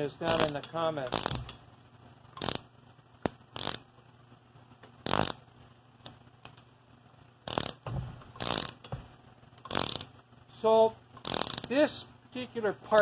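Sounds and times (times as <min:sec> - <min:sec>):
ratchet wrench clicking: 0:00.3 - 0:01.6, 0:02.3 - 0:03.9, 0:05.0 - 0:05.4, 0:07.5 - 0:08.9, 0:09.6 - 0:10.2, 0:11.2 - 0:11.8.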